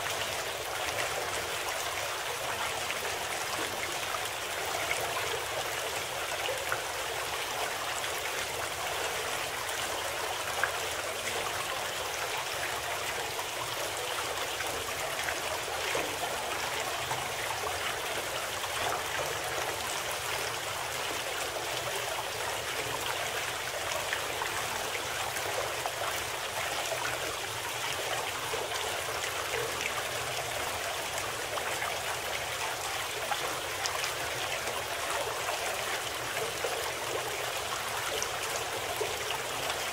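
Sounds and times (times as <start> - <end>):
trickling stream: 0.0 - 39.9.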